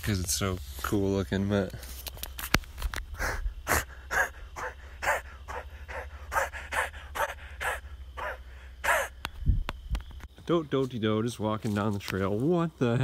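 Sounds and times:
person panting heavily: 3.1s - 9.2s.

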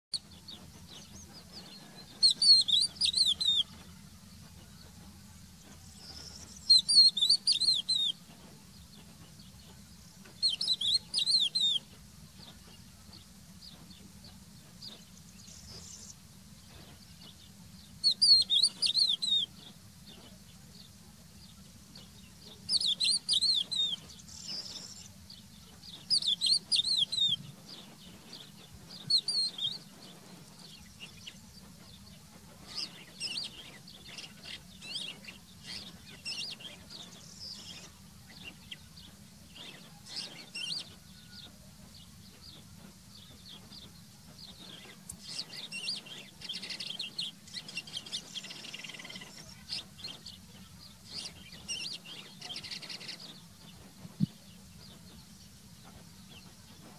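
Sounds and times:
lark singing: 0.1s - 12.0s, 17.9s - 20.4s, 22.0s - 41.5s, 43.3s - 54.3s.

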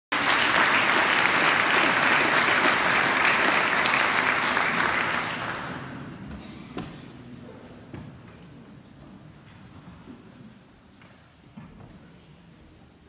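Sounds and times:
audience applauding: 0.1s - 6.1s.

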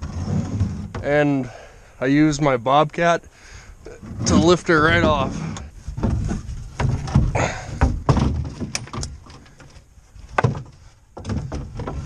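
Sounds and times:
wooden boards knocking in truck bed: 6.0s - 9.1s, 10.3s - 12.0s.

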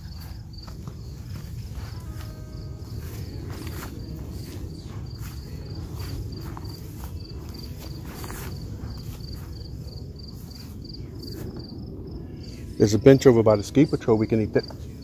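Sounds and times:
footsteps through tall grass: 0.0s - 11.7s
insect chirping: 0.0s - 13.2s
wind rumbling on microphone: 0.0s - 15.0s.

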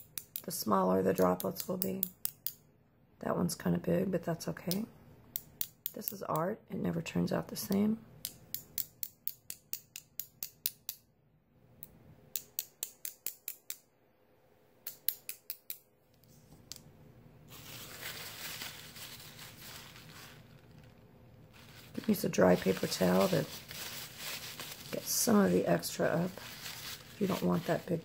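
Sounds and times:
paper towel rustling: 17.5s - 28.0s.

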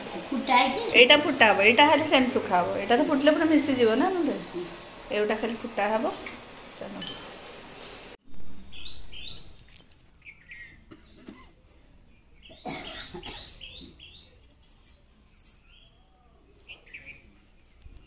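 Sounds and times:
small birds chirping: 8.6s - 18.0s.

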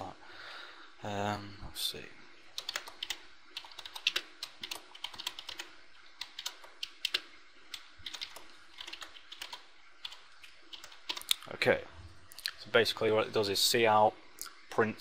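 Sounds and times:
computer keyboard typing: 2.6s - 11.4s.

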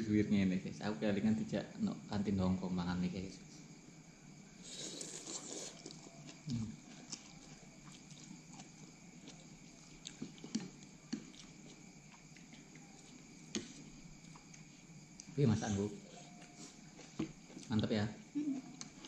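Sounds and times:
faint steady hum: 0.0s - 19.0s
noodles slurped and chewed: 4.6s - 14.0s.

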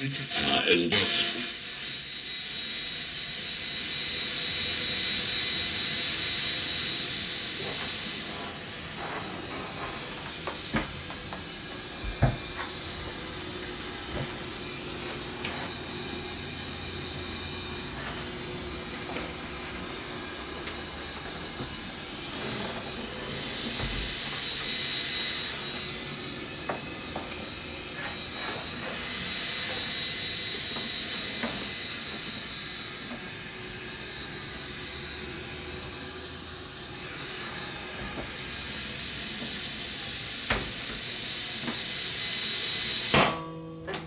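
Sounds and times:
radio static hiss: 0.0s - 1.9s
faint steady whistles: 1.4s - 43.2s.

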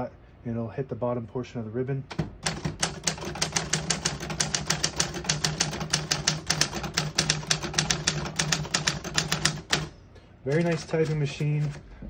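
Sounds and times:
typewriter typing: 2.1s - 9.9s, 10.5s - 11.8s.

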